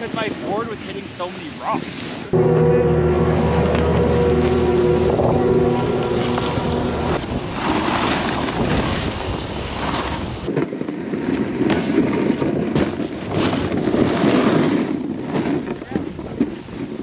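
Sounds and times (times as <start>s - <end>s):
snowboard scraping over snow: 7.2s - 17.0s.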